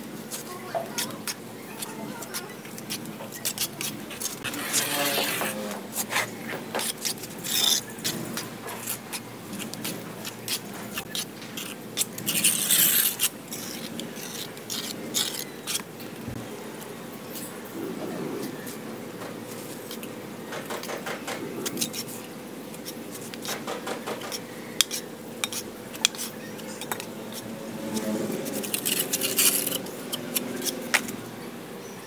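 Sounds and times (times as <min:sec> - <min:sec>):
trowel scraping mortar: 0:00.3 - 0:15.9, 0:19.5 - 0:31.2
trowel tapping mortar: 0:22.8 - 0:27.4.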